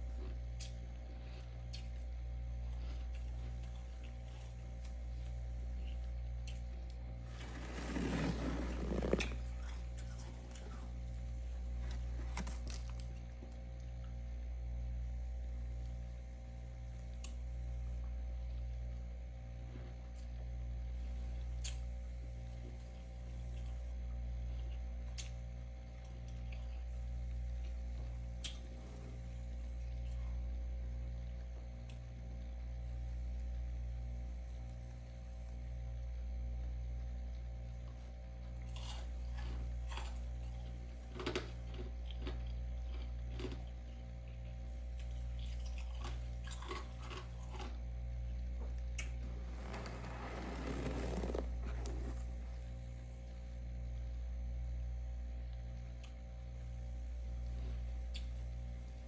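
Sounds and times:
low electrical hum: 0:00.0 - 0:59.0
light crackles and scrapes: 0:07.2 - 0:10.7, 0:49.0 - 0:52.7.

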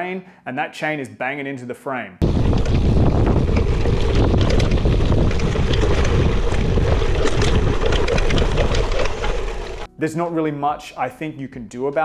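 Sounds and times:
bike tyre rumble: 0:02.2 - 0:09.9
wind buffeting microphone: 0:02.2 - 0:09.9.

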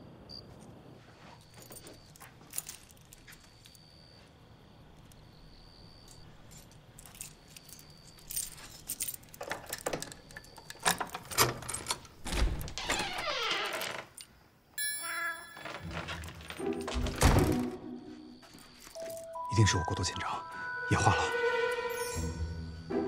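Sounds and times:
keys jangling: 0:01.5 - 0:03.8, 0:05.9 - 0:12.8, 0:14.2 - 0:17.6, 0:18.4 - 0:19.4
metal clicks at door lock: 0:09.1 - 0:14.3
short musical tone: 0:19.4 - 0:23.0.

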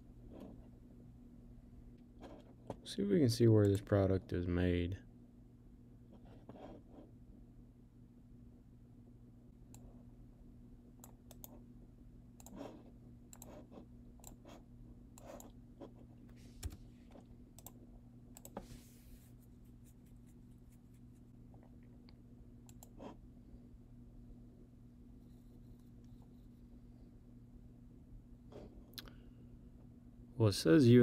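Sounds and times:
low electrical hum: 0:00.0 - 0:31.0
keyboard typing clicks: 0:17.6 - 0:17.8.

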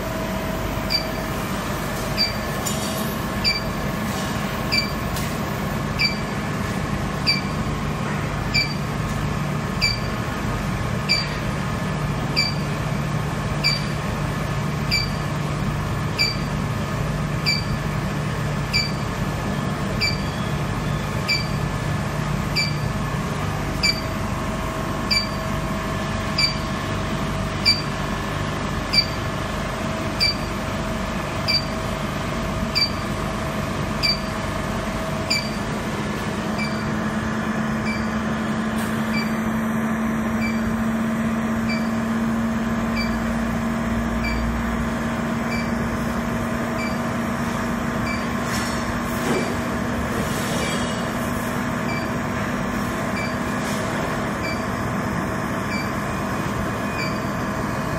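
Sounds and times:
furnace machine hum: 0:00.0 - 0:57.9.

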